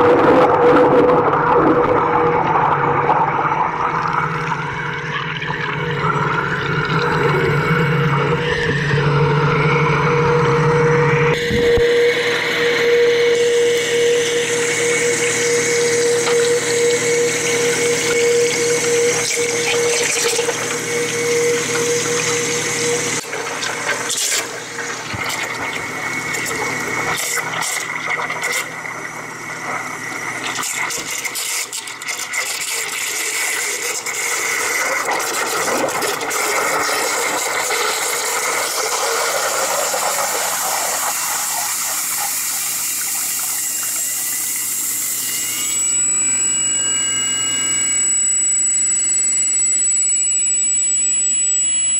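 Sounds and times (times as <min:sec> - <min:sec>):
low hum: 0:00.0 - 0:23.9
high motor whine: 0:00.0 - 0:32.1, 0:33.6 - 0:51.9
water churning and bubbling: 0:00.0 - 0:45.2.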